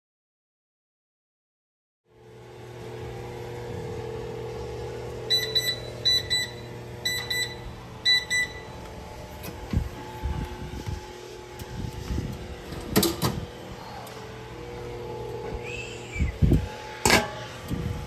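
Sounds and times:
steady hum: 2.1s - 18.0s
oven short high beeps: 5.3s - 8.8s.

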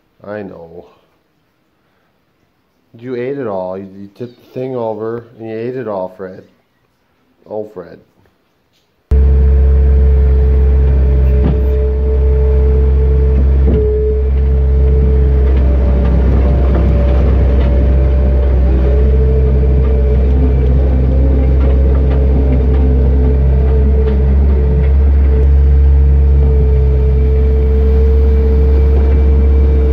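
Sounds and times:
engine whine: 9.1s - 29.9s
tractor engine running: 9.1s - 29.9s.

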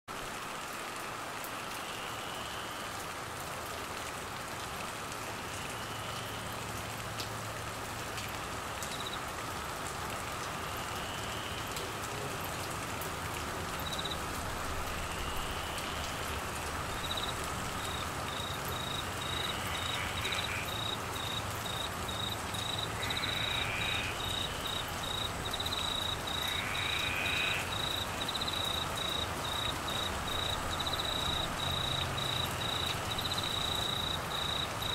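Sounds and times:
heavy rain falling: 0.1s - 34.9s
cricket chirping: 8.8s - 9.2s, 13.8s - 14.3s, 15.0s - 34.9s.

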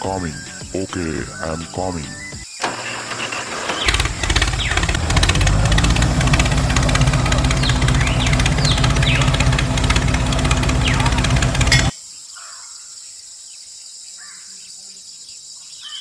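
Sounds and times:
tractor engine chugging: 2.7s - 11.9s.

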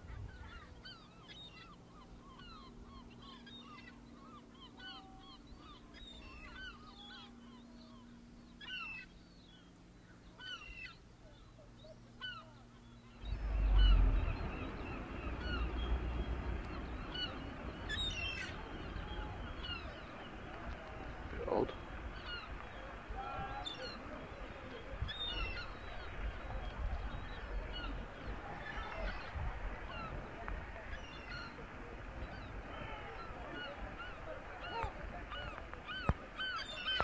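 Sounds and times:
gulls calling: 0.0s - 37.0s
loud low rushing noise: 13.2s - 17.9s.

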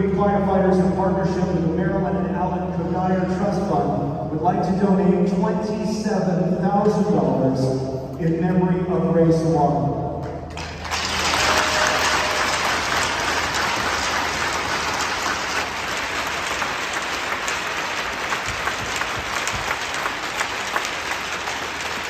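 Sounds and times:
crowd applauding: 10.5s - 22.0s.

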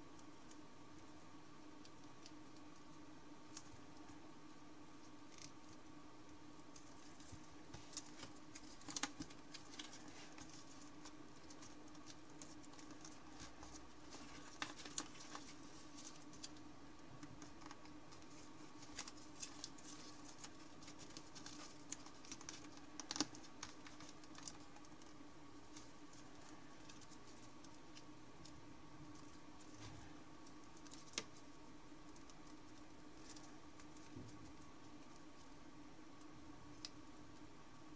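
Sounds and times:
paper crinkling while folding: 6.7s - 16.7s, 17.3s - 35.5s.

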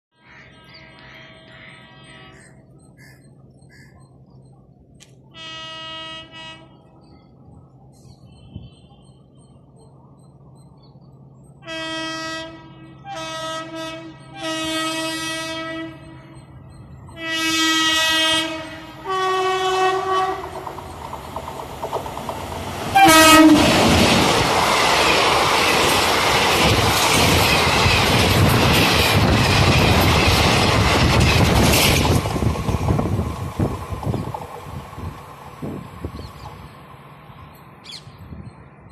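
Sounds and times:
locomotive horn blasts: 0.2s - 2.7s, 5.3s - 7.0s, 11.6s - 16.4s, 17.0s - 20.6s, 23.0s - 23.9s.

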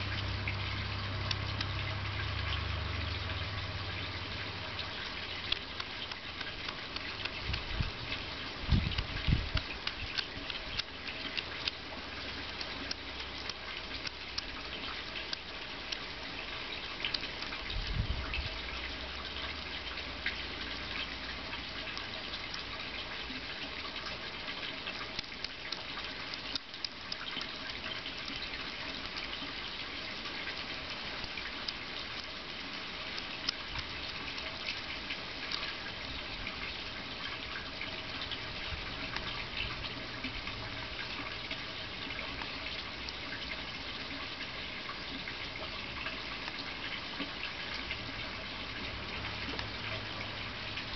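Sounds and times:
hedgehog chewing and smacking: 0.1s - 17.8s.

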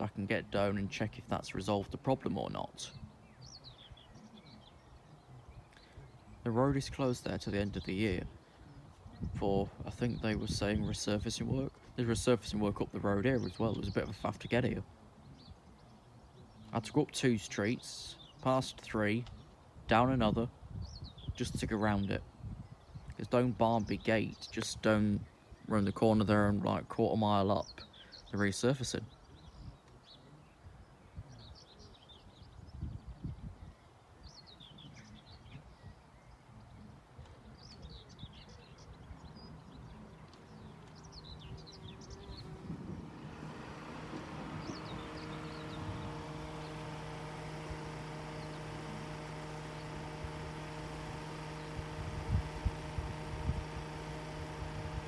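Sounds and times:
small birds chirping: 0.0s - 55.0s
low rumbling wind gusts: 6.3s - 14.2s, 38.2s - 55.0s
steady engine hum: 36.5s - 55.0s.

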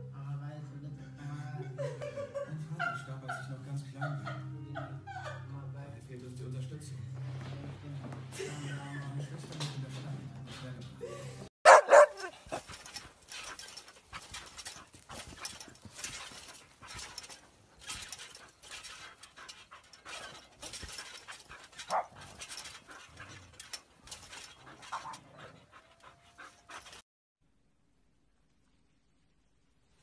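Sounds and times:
dogs panting hard: 11.7s - 27.0s.

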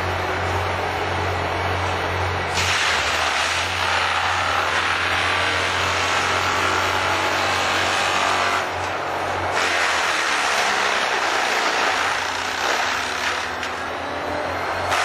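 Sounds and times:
diesel engine under load: 0.0s - 15.0s
mulcher chipping wood: 2.5s - 14.0s.

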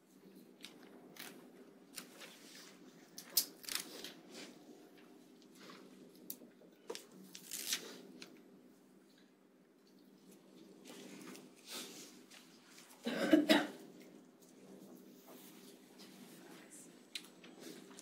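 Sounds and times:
paper rustling: 6.9s - 8.0s.

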